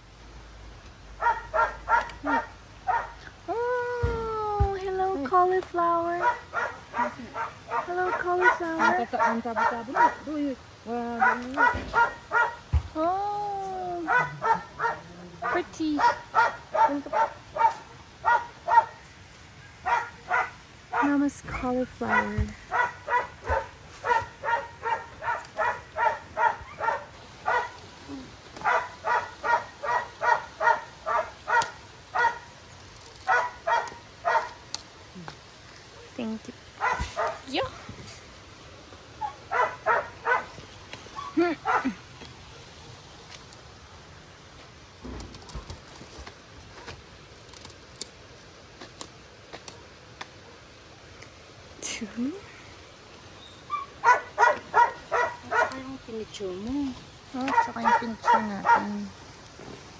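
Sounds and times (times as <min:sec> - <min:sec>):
dog barking: 0:01.2 - 0:03.2, 0:06.2 - 0:10.3, 0:11.2 - 0:12.6, 0:14.1 - 0:19.0, 0:19.8 - 0:21.2, 0:22.0 - 0:27.8, 0:28.6 - 0:32.5, 0:33.2 - 0:34.6, 0:36.8 - 0:37.5, 0:39.2 - 0:40.6, 0:41.6 - 0:42.0, 0:53.7 - 0:55.8, 0:57.4 - 0:59.0
cauliflower leaves snapping: 0:32.8 - 0:35.4, 0:45.1 - 0:50.3.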